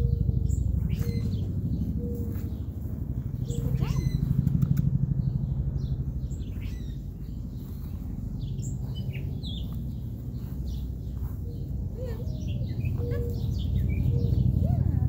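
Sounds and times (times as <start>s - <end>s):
birds chirping and calling: 0.0s - 15.0s
steady low rumble: 0.0s - 15.0s.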